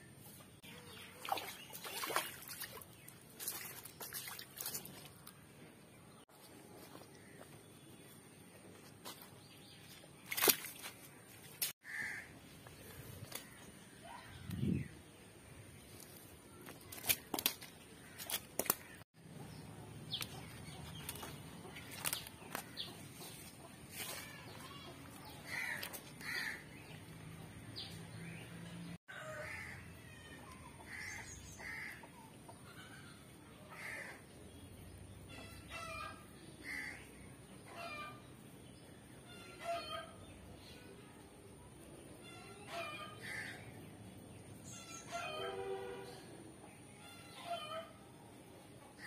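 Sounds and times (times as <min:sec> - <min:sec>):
slaps and splashes in muddy water: 0:01.0 - 0:05.4, 0:10.2 - 0:11.7, 0:16.8 - 0:19.0.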